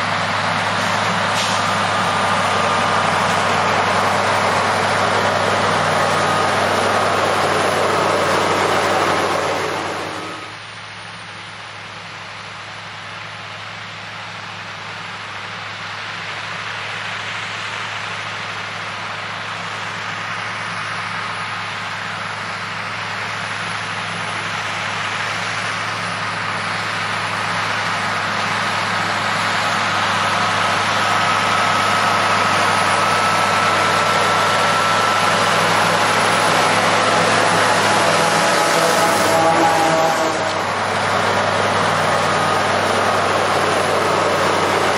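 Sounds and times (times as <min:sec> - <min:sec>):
tractor diesel engine under load: 0:00.0 - 0:44.9
high steady whine: 0:25.7 - 0:44.9.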